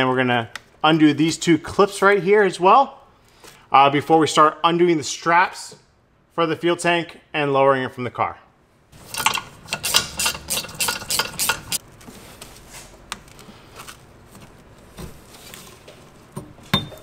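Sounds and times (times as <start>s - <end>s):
rubber hose rubbing: 9.0s - 11.8s
hand tool clicking rapidly: 9.2s - 11.8s.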